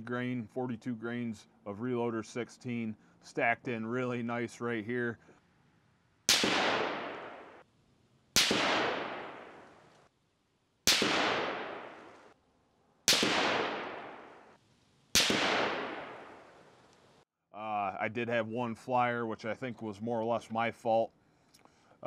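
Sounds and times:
rifle shots echoing: 0:06.3 - 0:07.6, 0:08.4 - 0:09.9, 0:10.8 - 0:12.4, 0:13.1 - 0:16.8.

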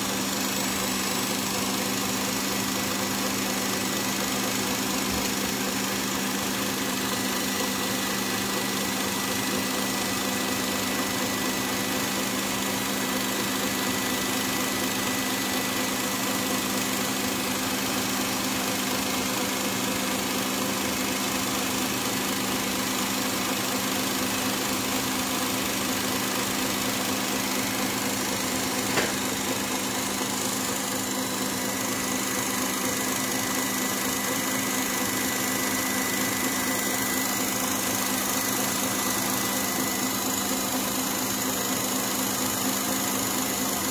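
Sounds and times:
stand mixer motor running: 0:00.0 - 0:43.9.

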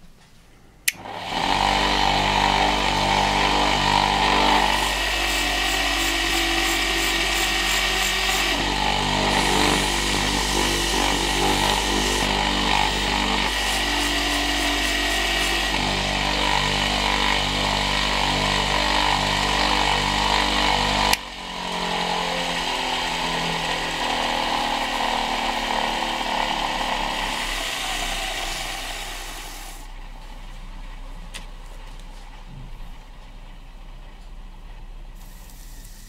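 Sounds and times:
lathe motor humming: 0:00.9 - 0:30.0
sanding spinning wood: 0:01.1 - 0:29.9.

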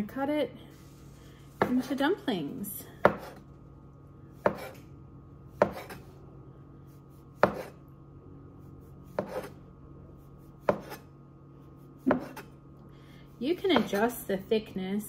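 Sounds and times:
knife chopping on countertop: 0:01.6 - 0:01.9, 0:03.0 - 0:03.4, 0:04.4 - 0:04.8, 0:05.5 - 0:06.1, 0:07.4 - 0:07.8, 0:09.0 - 0:09.6, 0:10.6 - 0:11.1, 0:12.0 - 0:12.5, 0:13.6 - 0:14.2.

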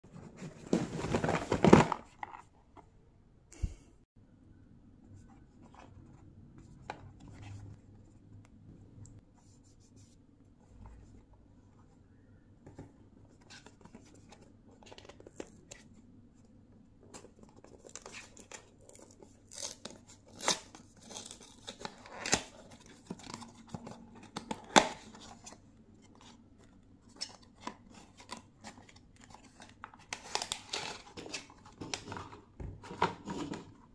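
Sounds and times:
rustling and knocking of boxes: 0:00.1 - 0:02.5.

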